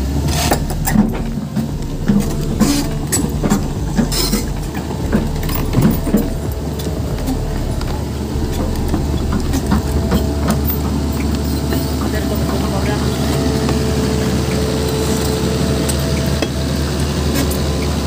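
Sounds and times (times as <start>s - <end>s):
diesel engine droning: 0.0s - 18.0s.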